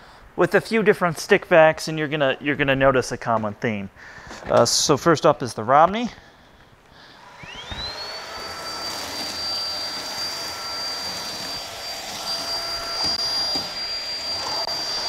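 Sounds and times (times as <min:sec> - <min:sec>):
vacuum motor high-pitched whine: 0:07.2 - 0:15.0.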